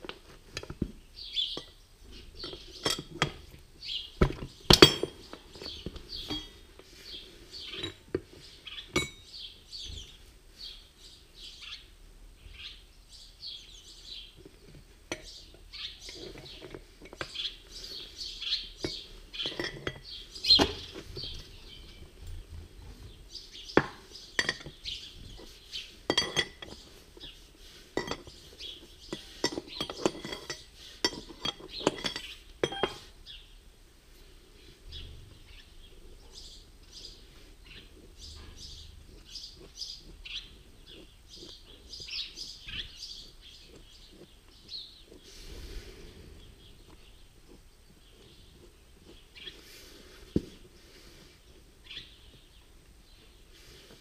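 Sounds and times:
metal clinks and knocks: 2.4s - 3.6s, 4.2s - 6.7s, 7.6s - 8.3s, 8.9s - 9.3s, 18.8s - 21.6s, 23.8s - 26.9s, 28.0s - 33.1s
screwdriver scraping inside steel bowl: 16.0s - 18.0s, 24.3s - 33.2s, 37.9s - 45.6s.

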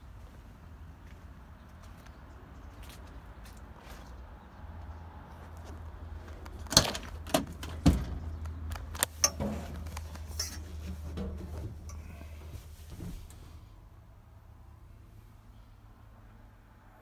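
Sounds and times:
knocks and clatters: 6.4s - 12.1s.

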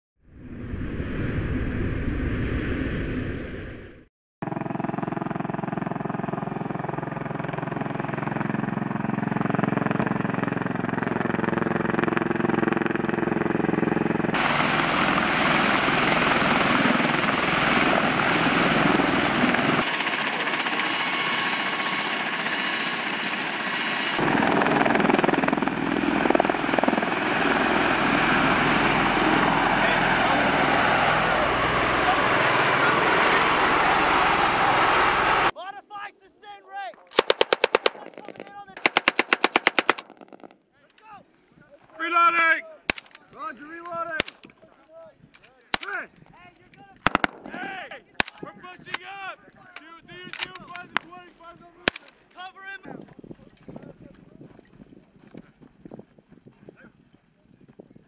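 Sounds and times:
whoosh: 0.2s - 4.1s
tiltrotor aircraft engines humming: 0.3s - 35.6s
rotor wash rushing: 14.4s - 19.3s.

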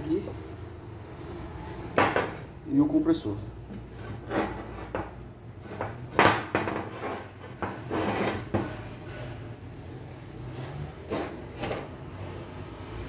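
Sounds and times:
sharp knocks on workbench: 4.9s - 6.9s
metal parts rubbing and scraping: 6.7s - 9.4s, 10.3s - 13.0s.

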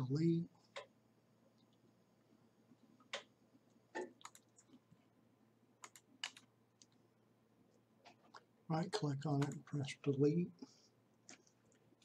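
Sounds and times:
mouse and keyboard clicks: 4.0s - 4.8s, 5.8s - 7.0s.

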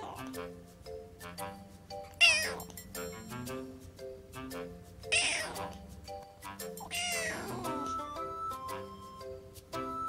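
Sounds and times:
soft plucked background music: 0.0s - 10.0s
kitten meowing: 2.2s - 2.7s, 5.1s - 5.8s, 6.8s - 7.8s.

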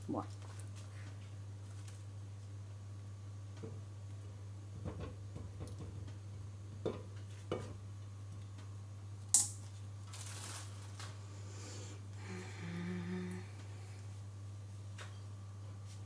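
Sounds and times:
plastic sheeting rustle: 10.0s - 11.2s.

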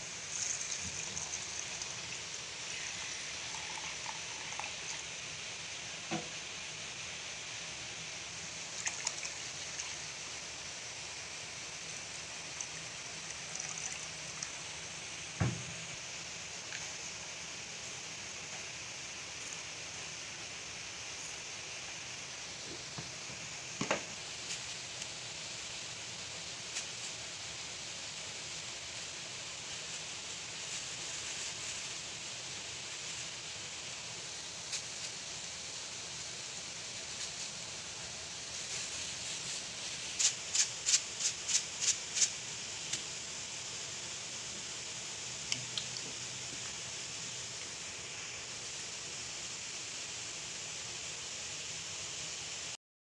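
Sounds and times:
coconut milk pouring: 0.0s - 6.0s, 8.4s - 11.2s, 12.0s - 15.5s
curry simmering hiss: 0.0s - 52.8s
dull knock: 15.4s - 15.8s.

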